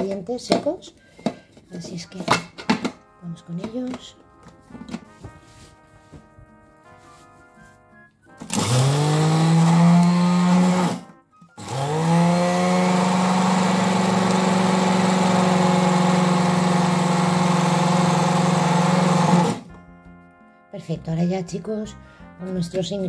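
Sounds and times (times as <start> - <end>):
electric food chopper grinding: 8.4 - 19.7.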